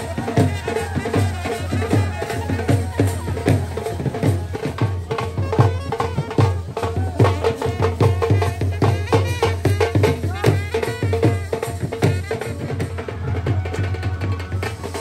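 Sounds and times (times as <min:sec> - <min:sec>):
rapid drum beats: 0:00.0 - 0:15.0.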